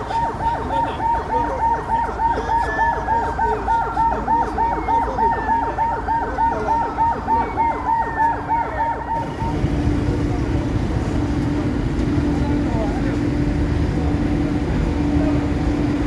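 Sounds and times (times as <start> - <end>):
siren yelping: 0.0 - 10.0
siren falling wail: 0.0 - 10.3.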